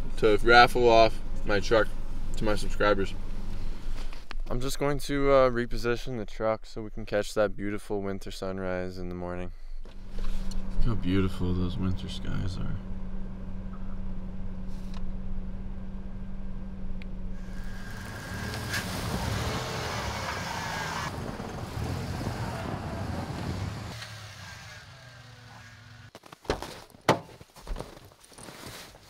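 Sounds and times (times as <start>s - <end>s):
truck engine running: 10.0s - 26.1s.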